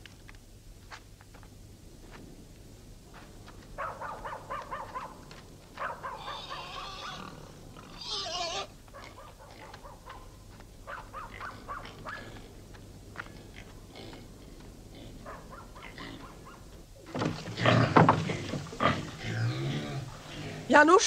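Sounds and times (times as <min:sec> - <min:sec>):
animals calling: 0:03.8 - 0:12.6, 0:13.2 - 0:21.0
harsh animal squeal: 0:06.0 - 0:08.7.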